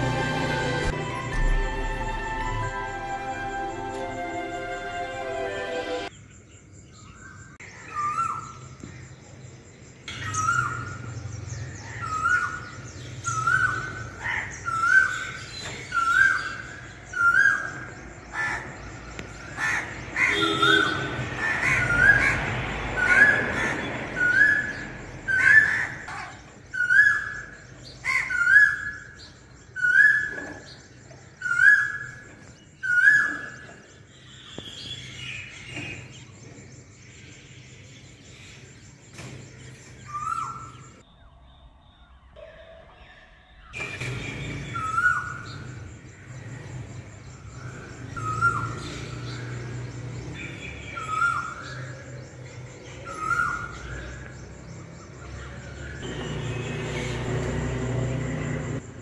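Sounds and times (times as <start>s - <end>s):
birds chirping: 0.0s - 59.0s
bird calling: 10.1s - 36.4s, 47.4s - 57.7s.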